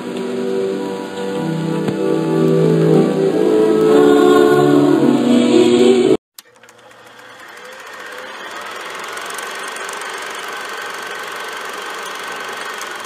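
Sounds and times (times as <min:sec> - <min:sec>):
film projector whirring and clattering: 0:06.4 - 0:13.0.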